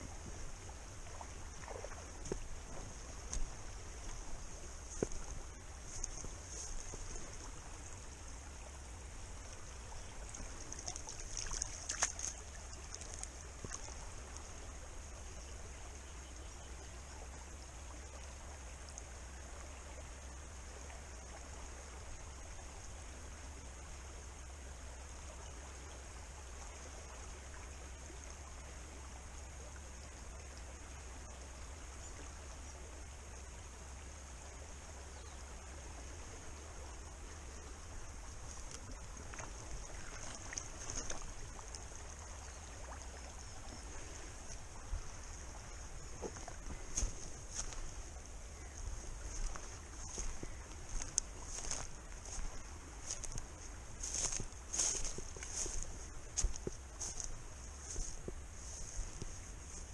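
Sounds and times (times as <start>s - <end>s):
river running over gravel: 0.0s - 59.9s
boots wading and splashing: 1.0s - 8.0s, 10.2s - 14.5s, 37.9s - 48.2s, 48.8s - 59.9s.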